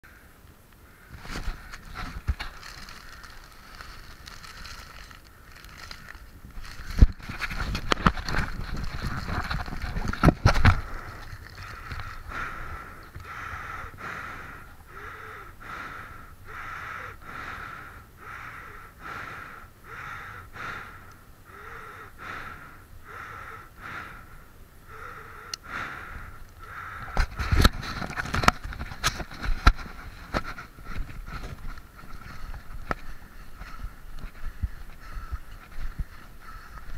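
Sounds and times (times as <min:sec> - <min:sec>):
dry bag crinkling and rustling: 0:01.1 - 0:13.2.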